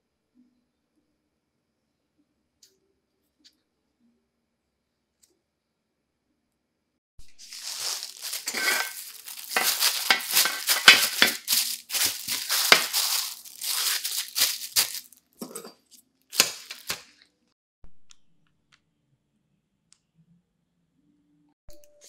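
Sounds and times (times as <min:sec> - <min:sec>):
plastic sheeting crinkling: 0:07.3 - 0:15.2, 0:16.3 - 0:17.2.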